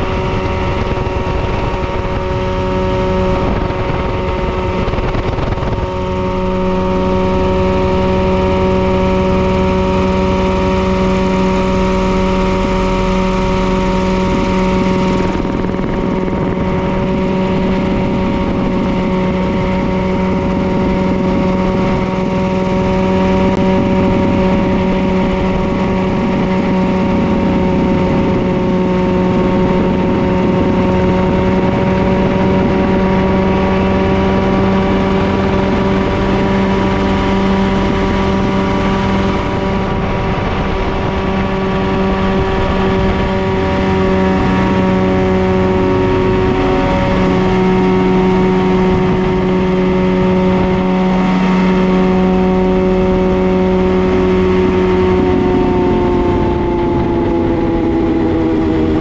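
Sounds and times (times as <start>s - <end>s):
helicopter engine and rotors: 0.0s - 59.0s.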